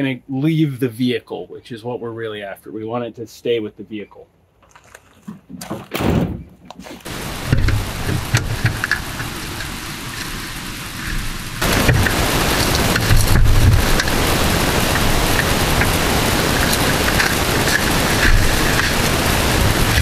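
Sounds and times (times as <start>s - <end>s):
steady rushing hiss: 7.1s - 20.0s.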